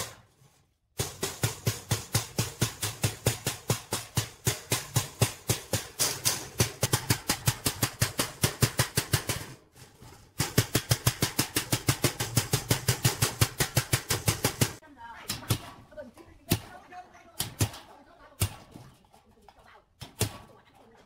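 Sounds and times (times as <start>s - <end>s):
small hammer striking metal grille: 1.0s - 9.6s.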